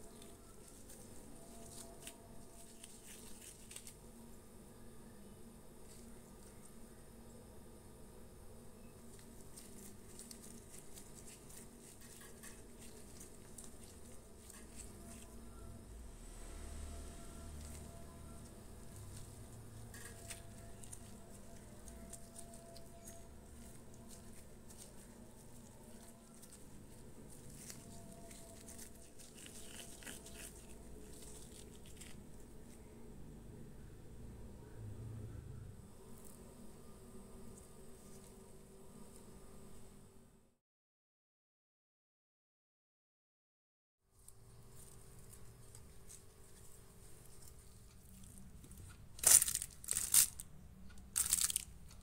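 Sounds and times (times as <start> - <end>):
hands kneading bread dough: 0.0 - 4.1, 8.9 - 15.8, 16.8 - 33.3.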